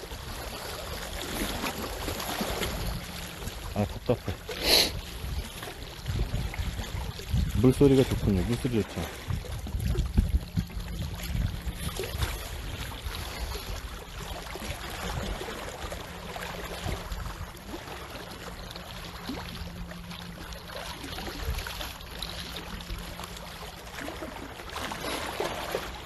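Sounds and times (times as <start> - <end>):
seawater splashing: 0.0 - 26.0.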